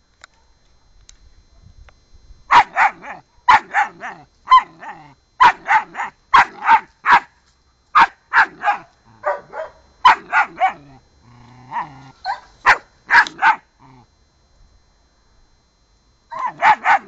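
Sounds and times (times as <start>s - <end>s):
puppy barking: 2.5s - 7.3s, 8.0s - 10.9s, 11.7s - 13.6s, 16.3s - 17.0s
puppy growling low: 2.9s - 6.7s, 10.2s - 12.5s, 13.2s - 14.1s.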